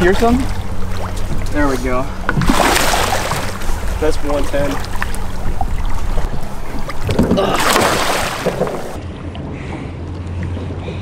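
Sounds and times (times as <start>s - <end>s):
low steady hum: 0.0s - 11.0s
water sloshing against hull: 0.0s - 11.0s
fish splashing: 0.2s - 9.0s.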